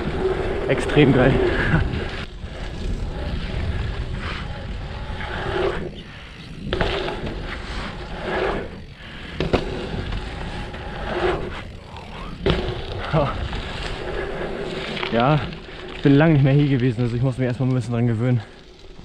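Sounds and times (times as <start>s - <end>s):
tyres rolling on dirt: 0.0s - 19.0s
wind rumbling on microphone: 0.0s - 19.0s
bike knocking: 6.5s - 8.0s, 8.7s - 17.9s.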